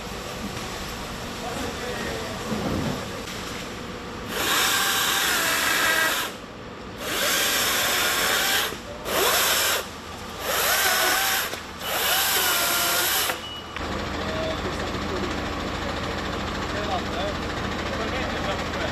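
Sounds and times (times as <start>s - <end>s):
electric chainsaw cutting wood: 4.3s - 6.4s, 7.0s - 13.4s.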